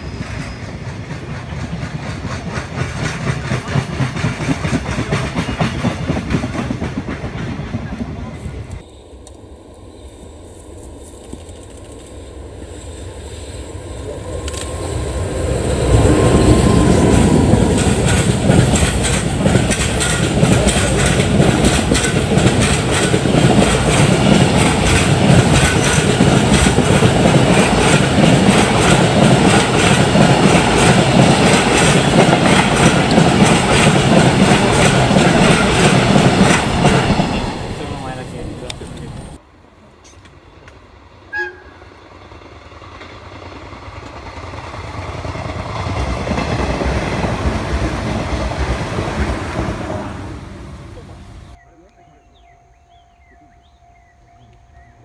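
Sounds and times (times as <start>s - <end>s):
train wheels clattering on rails: 0.0s - 8.8s, 14.4s - 39.4s, 42.8s - 50.5s
locomotive whine: 6.8s - 55.0s.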